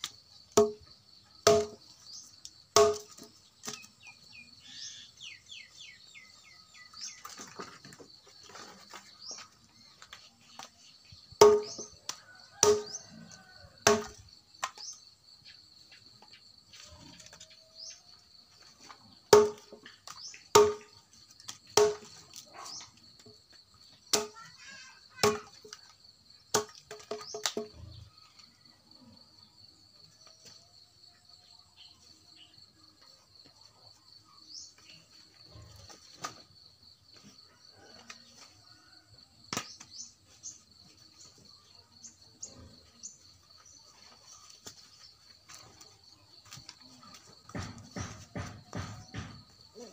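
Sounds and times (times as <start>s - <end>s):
dry branches being chopped: 0.6s - 0.8s, 1.4s - 1.8s, 2.8s - 3.9s, 11.4s - 13.0s, 13.8s - 15.0s, 19.3s - 22.8s, 24.1s - 24.4s, 39.5s - 40.1s, 46.4s - 49.5s.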